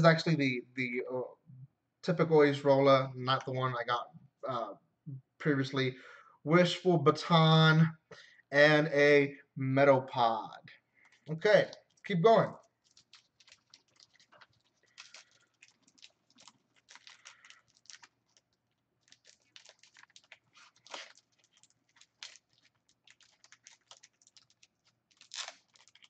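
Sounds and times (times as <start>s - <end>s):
foil wrapper crinkling: 11.0s - 26.0s.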